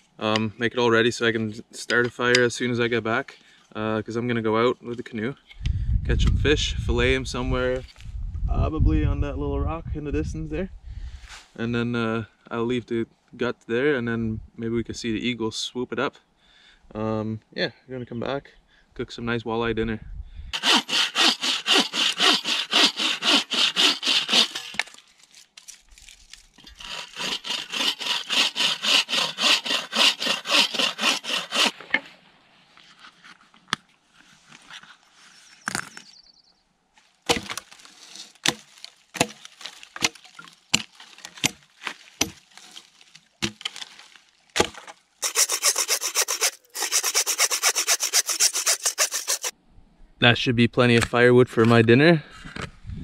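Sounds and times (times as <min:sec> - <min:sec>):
hand saw cutting wood: 0:20.6 - 0:25.0, 0:26.6 - 0:32.1, 0:44.6 - 0:49.5.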